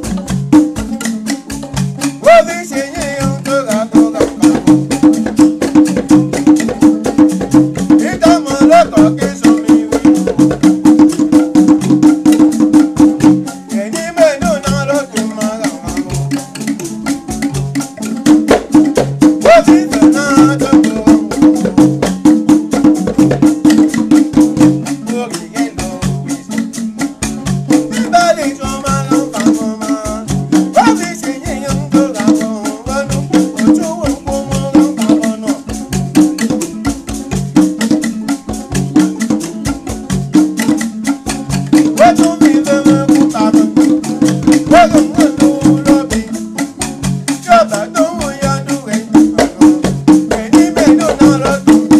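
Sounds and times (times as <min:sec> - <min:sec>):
rattles and percussion: 0:00.0 - 0:51.9
voices singing: 0:02.2 - 0:04.7, 0:08.0 - 0:10.2, 0:13.7 - 0:16.4, 0:19.4 - 0:21.5, 0:25.1 - 0:26.7, 0:27.9 - 0:35.8, 0:42.0 - 0:46.6, 0:47.4 - 0:51.9.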